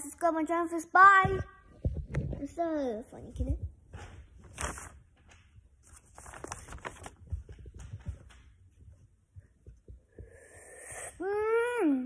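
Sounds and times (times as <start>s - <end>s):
rustling against microphone: 3.4s - 10.0s.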